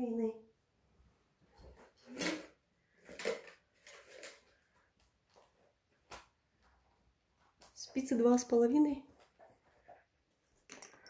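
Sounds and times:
knitting rustles: 1.4s - 11.0s.

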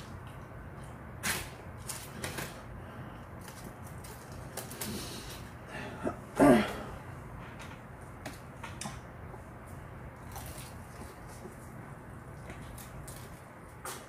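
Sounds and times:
person clearing throat: 5.8s - 7.0s.

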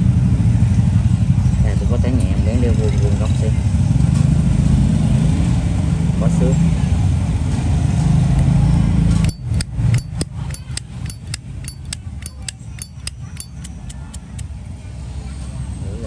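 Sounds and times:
lighter lid clicking: 9.2s - 14.4s.

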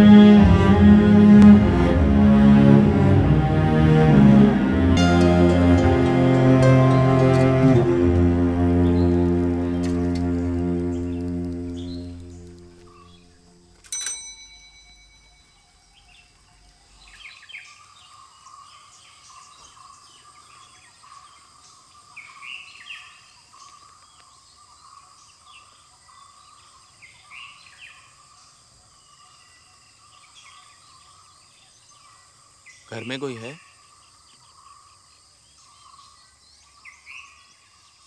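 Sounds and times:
birds chirping: 4.5s - 13.8s, 14.4s - 38.0s
insect drone: 7.7s - 13.9s
bicycle bell ring: 13.8s - 15.6s.

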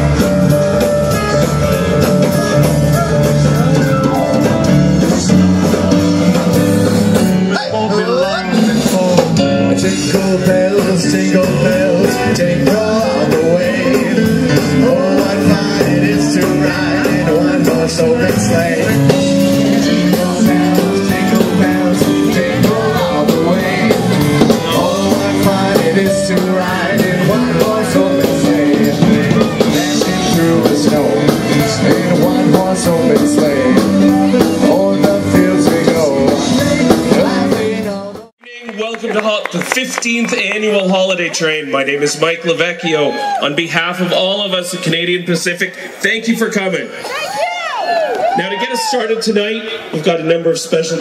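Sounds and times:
steady drum beat: 0.0s - 7.6s, 8.4s - 38.4s
person singing: 0.0s - 38.3s
rock band music: 0.0s - 44.9s.

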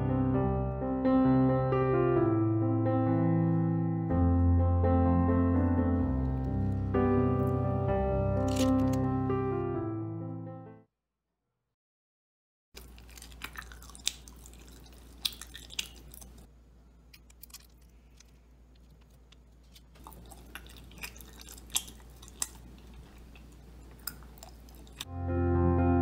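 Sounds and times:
person chewing: 8.3s - 9.3s, 12.8s - 25.1s.

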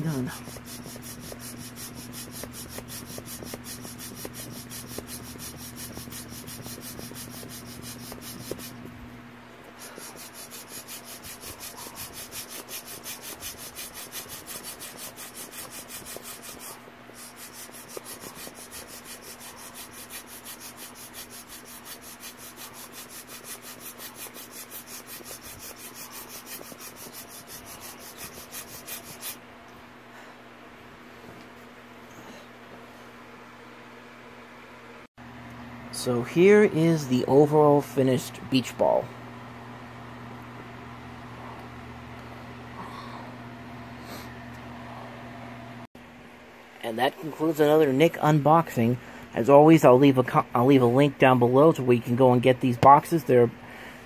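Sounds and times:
beach ball rubbing rasping: 0.0s - 9.0s, 9.7s - 29.4s.

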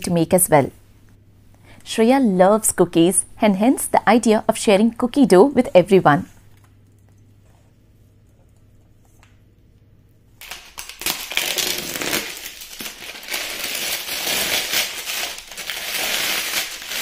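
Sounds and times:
faint low hum: 0.0s - 11.3s
aluminium foil crinkling: 10.4s - 17.0s.

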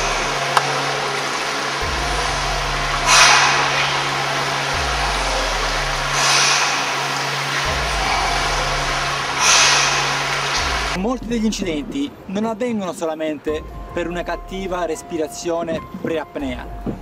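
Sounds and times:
steady hiss: 0.0s - 11.0s
low hum: 0.0s - 12.2s
person breathing forcefully: 3.0s - 11.0s.

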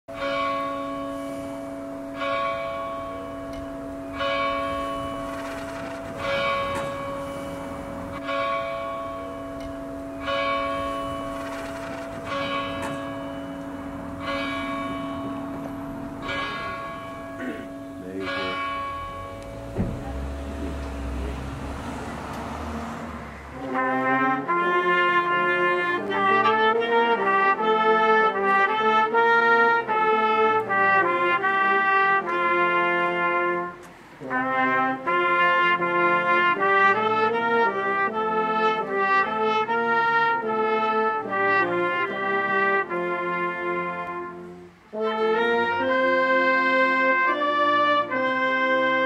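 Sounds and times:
tower clock bell striking: 0.1s - 22.8s.

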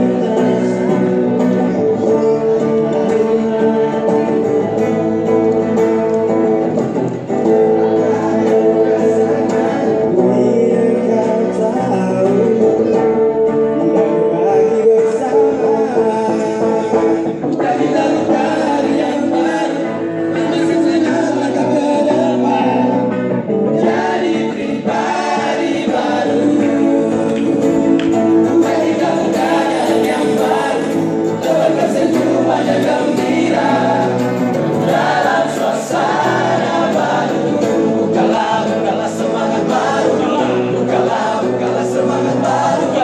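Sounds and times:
group singing pop songs: 0.0s - 43.0s.

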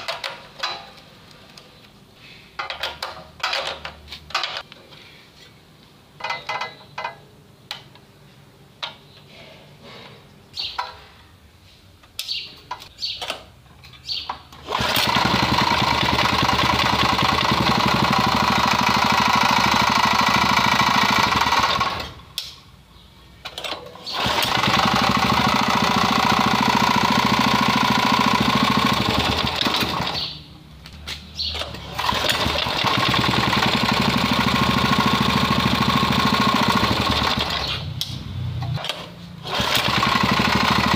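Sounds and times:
parts clicking and knocking: 0.0s - 2.0s, 2.6s - 4.9s, 6.2s - 8.1s, 8.8s - 9.3s, 12.0s - 16.1s, 23.4s - 30.2s
small petrol engine running: 14.6s - 22.2s, 24.1s - 30.4s, 31.6s - 37.9s, 38.8s - 40.9s.

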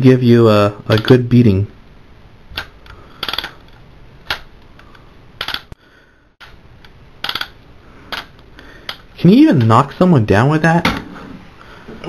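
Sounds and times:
plastic toy clicking: 2.6s - 4.5s, 5.4s - 5.8s, 7.2s - 9.0s.

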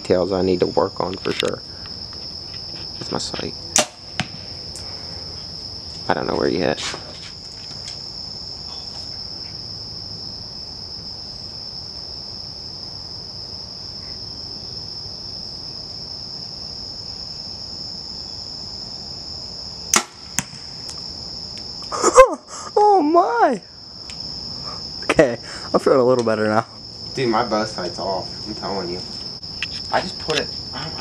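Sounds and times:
high-pitched insect chorus: 0.0s - 31.0s
bow shot snap: 3.8s - 4.5s, 19.9s - 20.7s.

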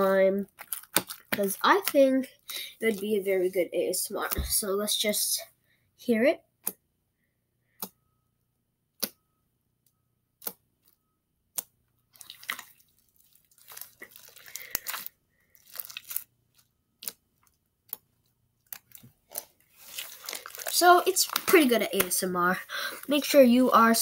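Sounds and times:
wet slime squishing: 0.0s - 5.0s, 11.5s - 24.0s
slime popping: 11.5s - 16.2s.

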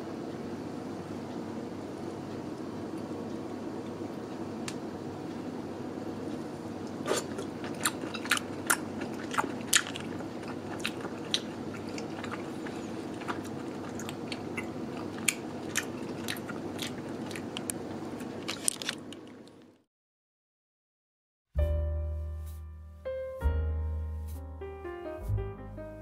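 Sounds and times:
steady low hum: 0.0s - 19.6s
mouth chewing with clicks and crunches: 7.0s - 19.7s.

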